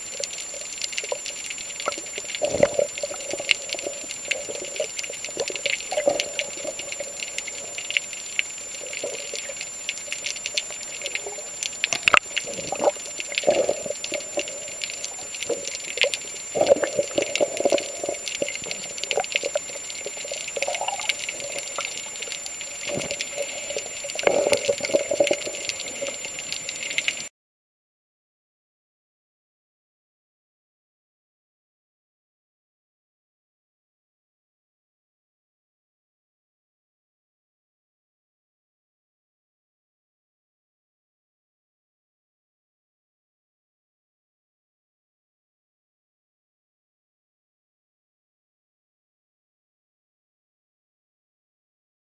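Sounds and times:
crackle of fine clicks: 0:00.0 - 0:27.3
underwater bubbling and gurgling: 0:00.0 - 0:27.3.

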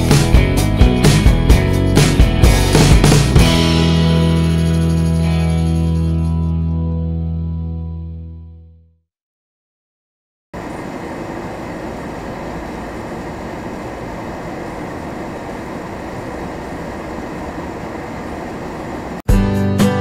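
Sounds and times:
guitar music: 0:00.0 - 0:08.7
vehicle road noise: 0:10.6 - 0:19.2.

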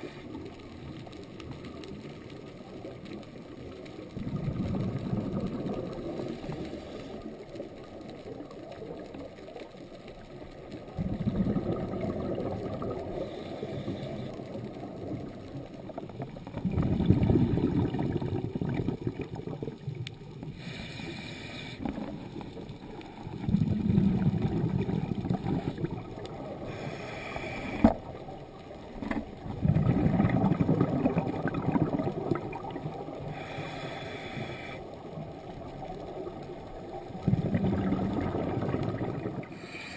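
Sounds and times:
exhaled bubbles rumbling: 0:00.0 - 0:20.8, 0:21.8 - 0:34.2, 0:34.8 - 0:39.7
regulator inhalation hiss: 0:20.6 - 0:21.8, 0:26.6 - 0:27.9, 0:33.2 - 0:34.9, 0:39.5 - 0:39.9.

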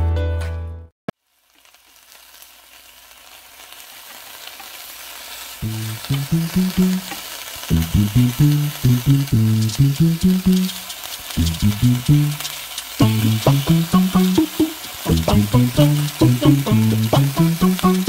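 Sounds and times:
meat sizzling in frying pan: 0:01.2 - 0:18.0.

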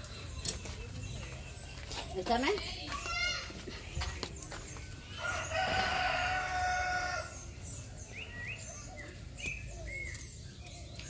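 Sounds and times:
rooster crowing: 0:05.1 - 0:07.4.

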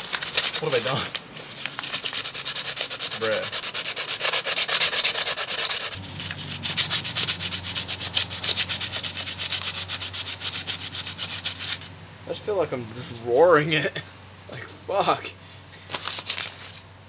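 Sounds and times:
sandpaper rubbing on metal: 0:00.0 - 0:11.9.

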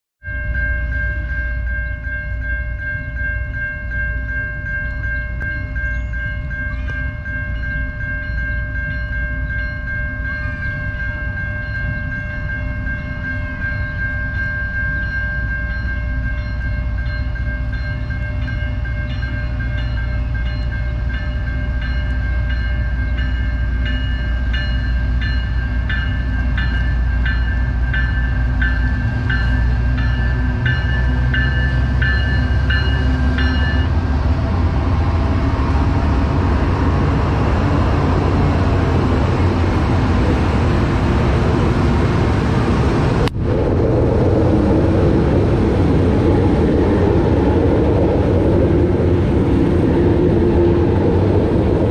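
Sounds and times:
high ringing tones: 0:00.2 - 0:34.2
diesel locomotive rumble: 0:00.2 - 0:51.9.

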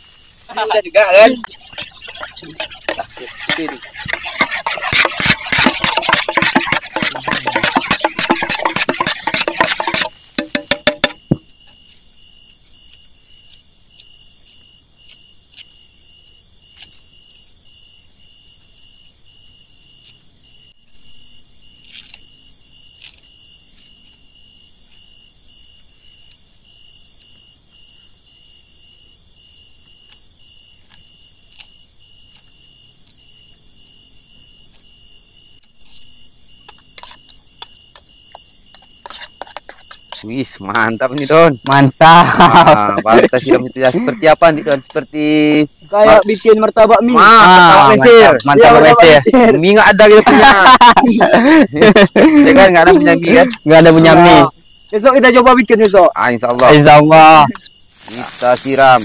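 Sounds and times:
crickets chirping: 0:00.0 - 0:59.0
food frying in hot oil: 0:57.9 - 0:59.0.

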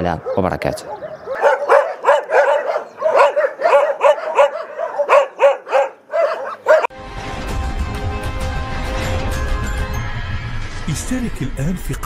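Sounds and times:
dog barking: 0:00.1 - 0:06.9.

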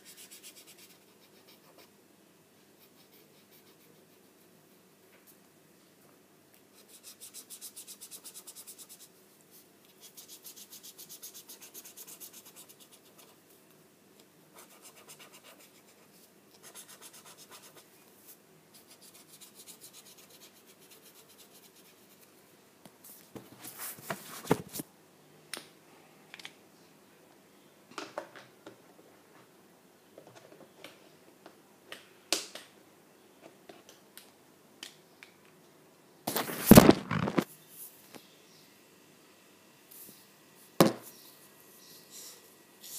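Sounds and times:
marker scratching on paper: 0:06.8 - 0:09.1, 0:10.0 - 0:13.3, 0:14.6 - 0:17.9, 0:18.8 - 0:22.3.

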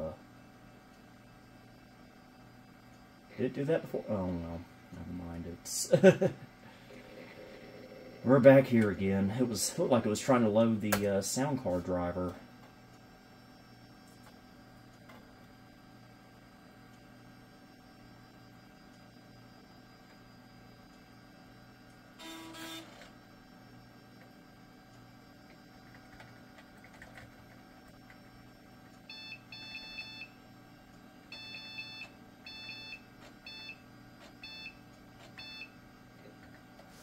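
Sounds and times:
steady low hum: 0:00.0 - 0:37.0
computer speaker beeping: 0:31.4 - 0:33.8.

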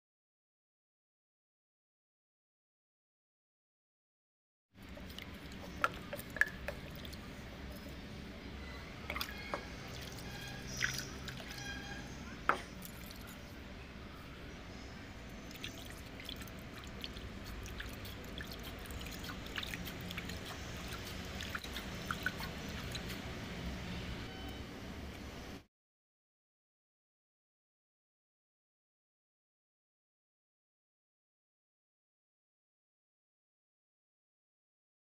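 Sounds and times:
water splashing and dripping: 0:04.9 - 0:07.3, 0:09.1 - 0:11.7, 0:15.5 - 0:23.2.

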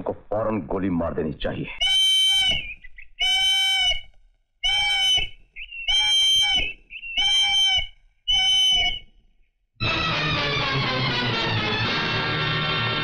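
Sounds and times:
police whistle blasts: 0:01.9 - 0:04.0, 0:04.6 - 0:09.1
music: 0:09.8 - 0:13.0.

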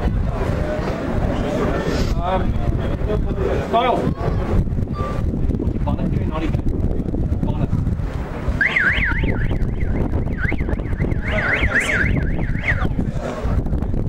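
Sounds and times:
wind noise on microphone: 0:00.0 - 0:14.0
high warbling tone: 0:08.5 - 0:13.0.

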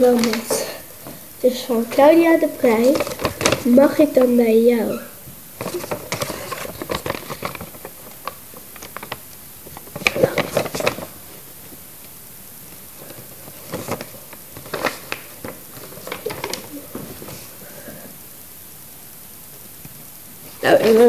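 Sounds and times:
paper crackling and rustling: 0:00.0 - 0:04.5, 0:05.6 - 0:11.8, 0:12.6 - 0:17.6, 0:20.4 - 0:21.0.

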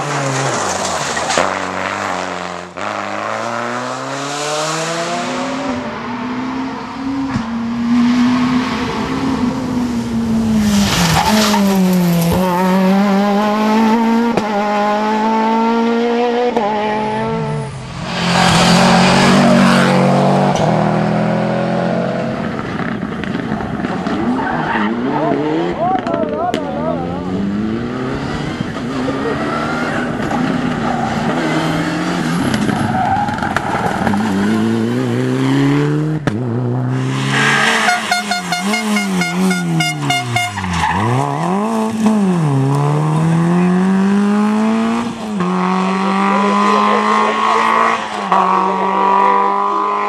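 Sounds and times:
rally car engines revving: 0:00.0 - 0:50.0.

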